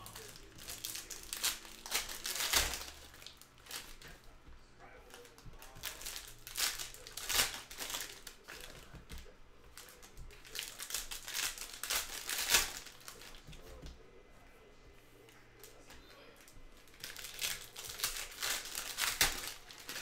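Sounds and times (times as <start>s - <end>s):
foil wrappers crinkling: 0.0s - 13.8s, 15.2s - 20.0s.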